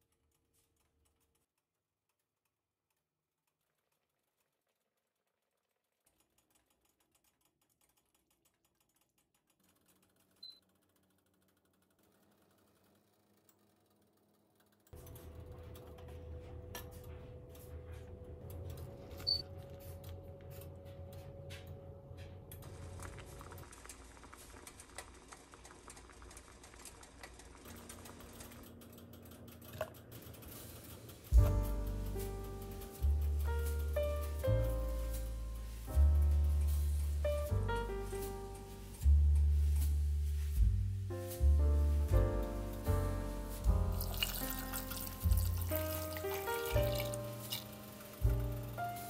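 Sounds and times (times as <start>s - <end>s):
faint rapid clicking: 0.0s - 15.3s, 22.6s - 39.9s.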